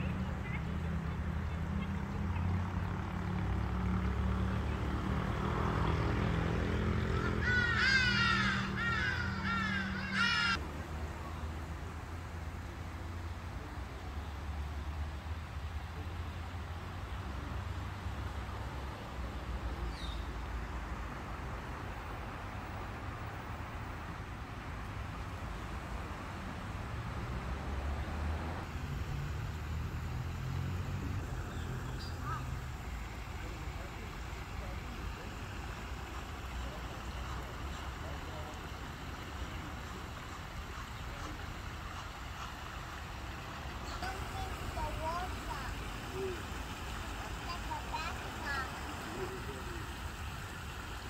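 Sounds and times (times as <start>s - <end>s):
bird harsh calls: 7.0s - 10.6s, 31.5s - 32.9s.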